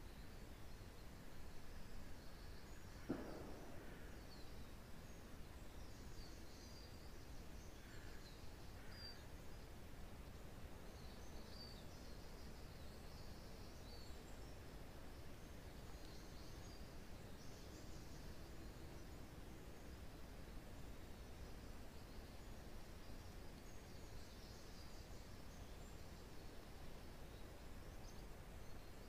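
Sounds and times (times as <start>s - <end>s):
wind through pine trees: 0.0s - 29.0s
soft knock: 3.0s - 4.1s.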